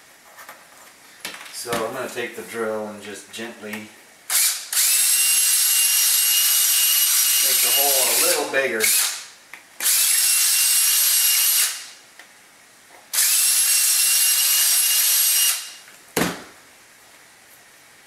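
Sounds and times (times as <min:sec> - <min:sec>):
cordless drill whining: 0:04.3 - 0:09.2, 0:09.8 - 0:11.9, 0:13.2 - 0:15.8.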